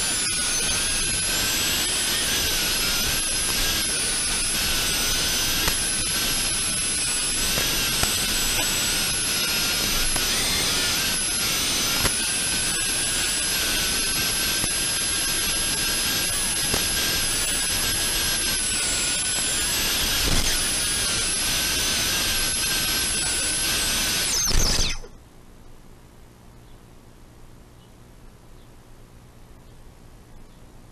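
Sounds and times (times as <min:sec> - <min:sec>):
quadcopter motors whining: 0:00.0 - 0:25.2
faint low hum: 0:25.0 - 0:30.9.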